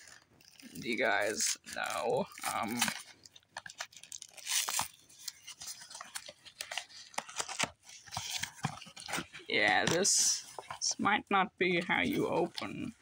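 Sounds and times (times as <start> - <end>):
cardboard tearing: 0.0 - 9.4.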